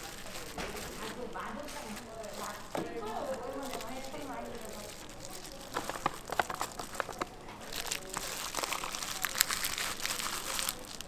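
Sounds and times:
plastic gloves crinkling: 0.0 - 11.0
bamboo mat rustling and clicking: 5.7 - 8.0.

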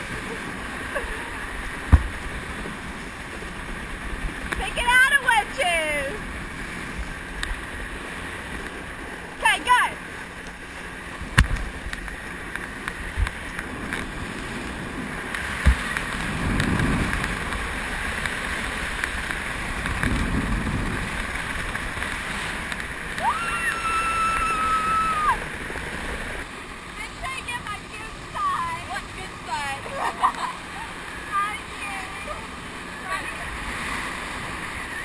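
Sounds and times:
boat running over water: 0.0 - 35.0
water rushing and sloshing: 0.0 - 35.0.

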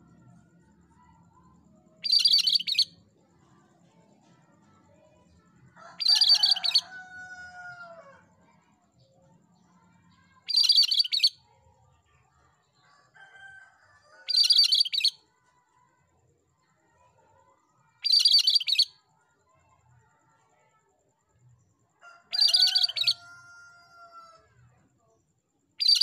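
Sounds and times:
bird chattering song: 2.0 - 3.0, 6.0 - 6.9, 10.4 - 11.4, 14.3 - 15.2, 18.0 - 18.9, 22.3 - 23.2, 25.8 - 26.0.

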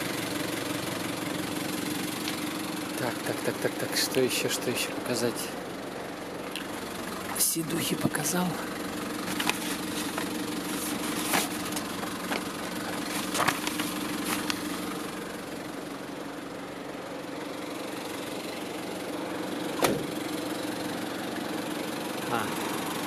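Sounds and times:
diesel engine idling: 0.0 - 23.0
paper rustling: 9.2 - 14.8.

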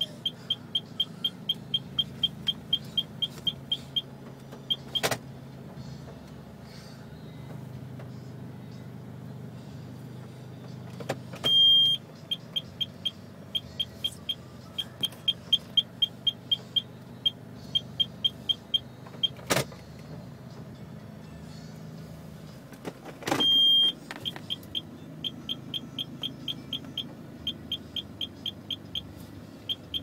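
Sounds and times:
high electronic beeps: 0.0 - 4.1, 11.4 - 19.4, 23.4 - 30.0
car engine idling: 0.0 - 30.0.

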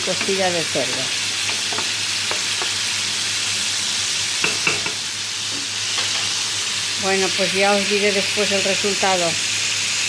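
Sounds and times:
broth hissing and bubbling in pan: 0.0 - 10.0
wooden spoon knocking on pan: 0.2 - 2.8, 4.4 - 5.0.

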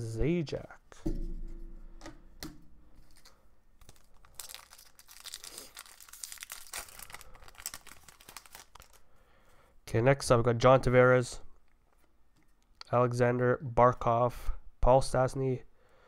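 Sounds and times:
wrapper tearing and crinkling: 3.0 - 9.0.

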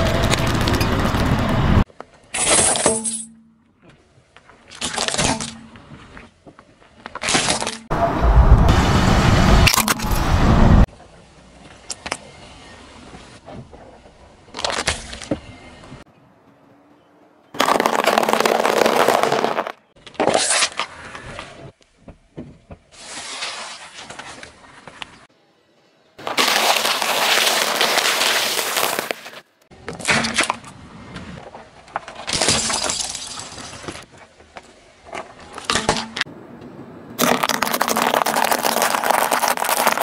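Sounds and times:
tyre crushing objects: 17.6 - 20.4, 37.2 - 40.0
brittle plastic crack: 37.2 - 40.0
rice cakes crunching: 37.2 - 40.0.

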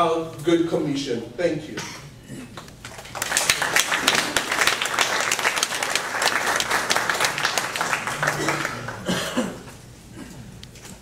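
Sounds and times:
audience applauding: 2.8 - 9.2.

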